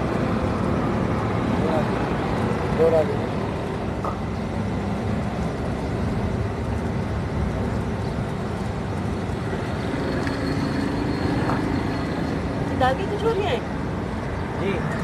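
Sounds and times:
food deep-frying in hot oil: 0.0s - 14.5s
street traffic rumble: 0.0s - 15.0s.

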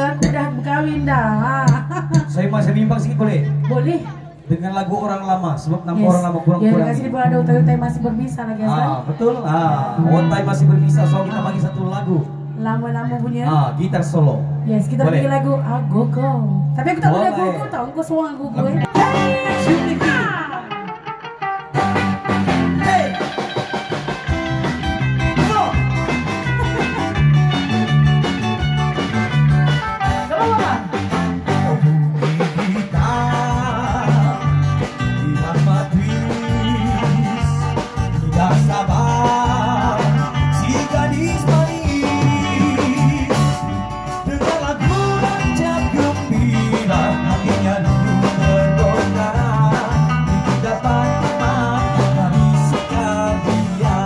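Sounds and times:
drum kit beat: 0.0s - 3.9s, 18.8s - 54.0s
electric guitar melody: 0.0s - 4.5s, 6.0s - 54.0s
bass line: 0.0s - 54.0s.

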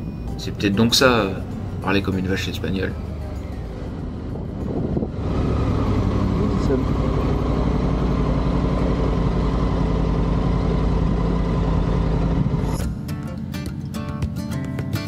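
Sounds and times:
motorcycle engine running: 2.9s - 15.0s
strummed acoustic guitar music: 12.8s - 15.0s.

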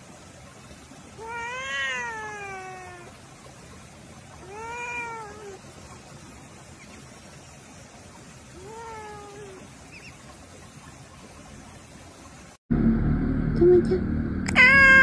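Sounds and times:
cat meowing: 1.2s - 3.1s, 4.4s - 5.6s, 14.5s - 15.0s.

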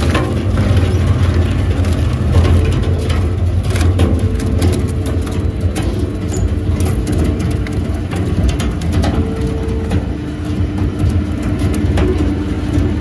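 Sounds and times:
wood cracking and splintering: 0.0s - 13.0s
wood shredder drone: 0.0s - 13.0s.

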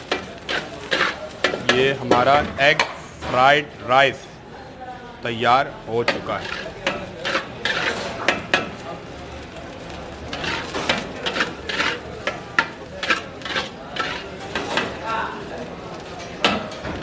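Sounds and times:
metal ladle scraping a wok: 0.0s - 3.2s, 6.1s - 8.7s, 10.3s - 15.0s.

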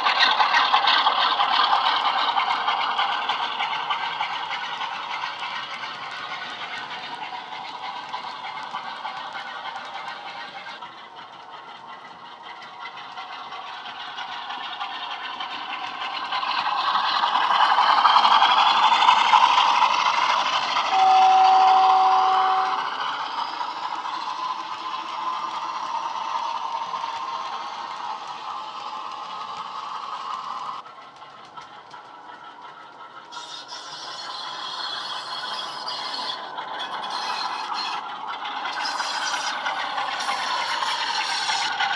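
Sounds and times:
wheels rattling on track: 0.0s - 41.9s
model diesel engine sound: 13.7s - 30.8s
locomotive horn: 20.9s - 23.0s.

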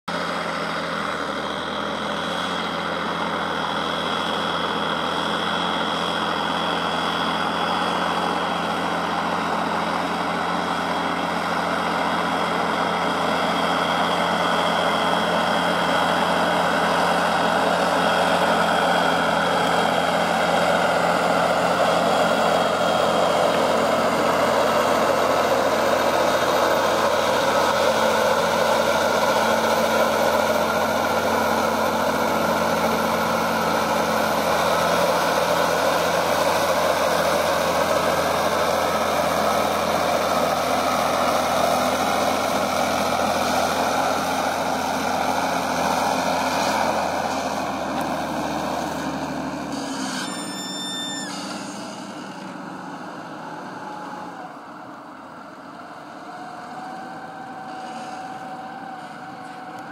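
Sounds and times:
tractor diesel engine under load: 0.0s - 59.9s
thin high whine: 49.6s - 52.5s.

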